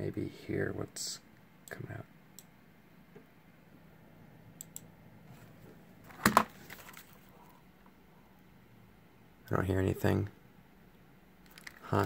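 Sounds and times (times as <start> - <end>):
faint low hum: 0.0 - 12.0
small clicks: 4.6 - 4.9, 11.4 - 11.8.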